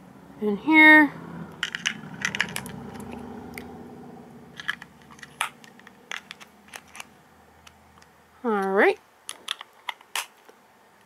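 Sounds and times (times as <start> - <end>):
batteries clicking into remote: 4.6 - 8.1.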